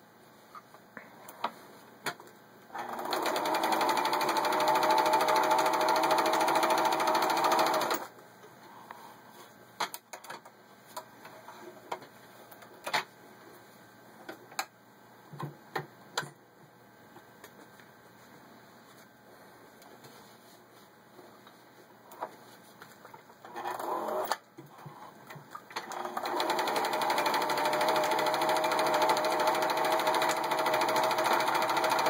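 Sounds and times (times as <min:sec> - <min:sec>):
sewing machine stitching: 0:02.8 - 0:08.1, 0:23.5 - 0:24.4, 0:25.8 - 0:32.0.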